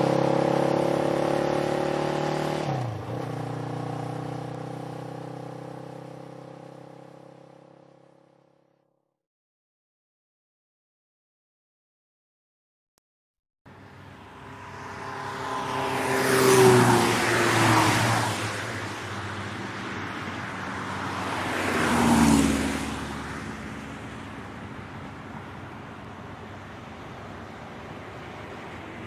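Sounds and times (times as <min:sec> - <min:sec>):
steady road noise: 0:00.0 - 0:09.0, 0:13.7 - 0:29.0
vehicles driving past: 0:13.7 - 0:29.0.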